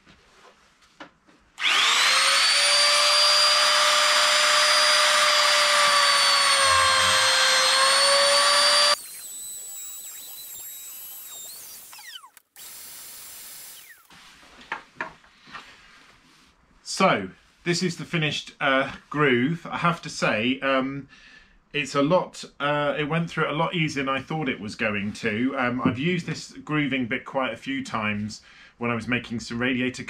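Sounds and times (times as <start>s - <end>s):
router whining cutting wood: 1.6s - 14.1s
vacuum hose sucking dust: 1.6s - 14.2s.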